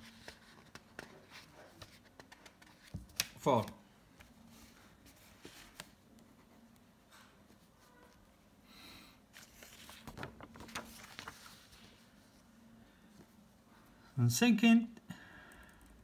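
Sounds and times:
paper sheet rustling and tapping: 0.0 - 4.3, 9.4 - 12.0.

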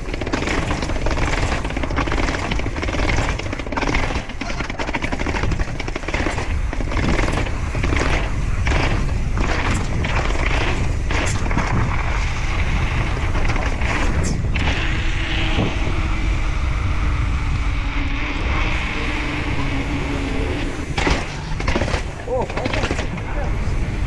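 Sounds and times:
bike knocks and rattles: 0.0 - 15.9, 20.9 - 24.0
wind buffeting microphone: 0.0 - 24.0.

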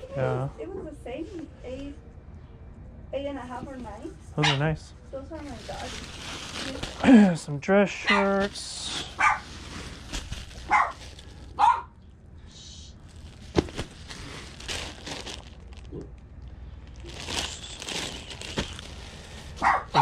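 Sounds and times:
dog yipping: 4.4 - 4.7, 9.2 - 9.4, 10.7 - 11.0, 11.6 - 11.9, 19.6 - 20.0
plastic packaging rustling: 5.3 - 7.4, 8.1 - 11.8, 13.0 - 16.1, 16.8 - 20.0.

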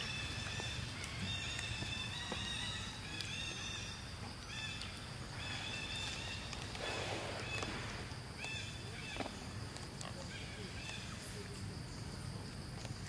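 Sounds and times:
rustling: 4.8 - 11.2.

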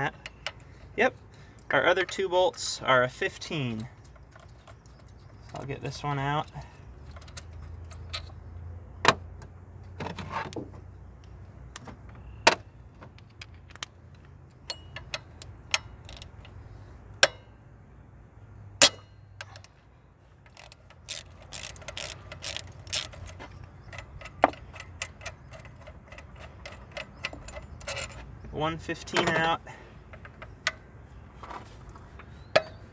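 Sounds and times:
metal tool clinking on bolt: 14.6 - 16.5, 20.5 - 28.3, 29.0 - 29.6
ratchet clicking: 20.5 - 28.2.

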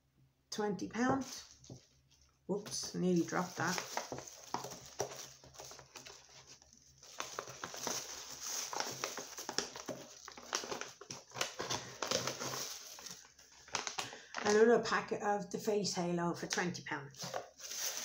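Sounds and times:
packaging rustling and crinkling: 1.1 - 14.6, 17.2 - 18.0
packaging clicks and taps: 3.7 - 6.2.

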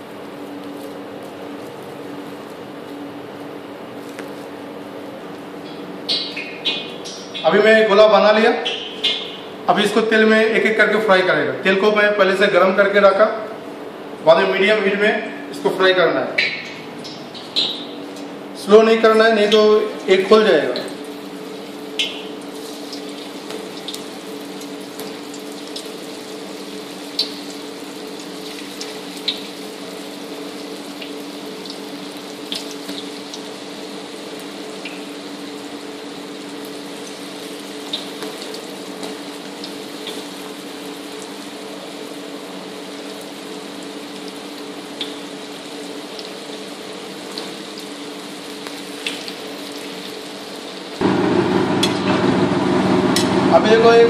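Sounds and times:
oil popping and crackling: 20.7 - 51.0
food sizzling in hot oil: 20.9 - 52.0
steady low hum: 51.0 - 54.0.

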